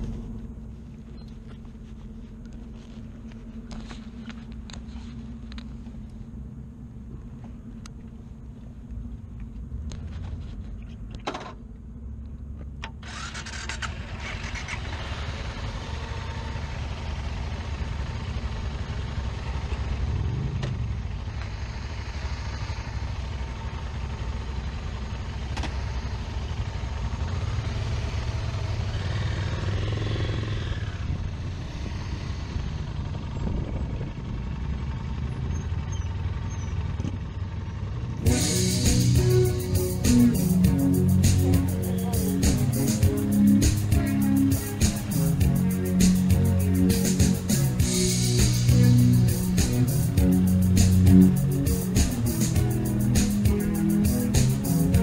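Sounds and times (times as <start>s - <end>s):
motorcycle engine revving: 12.8s - 55.0s.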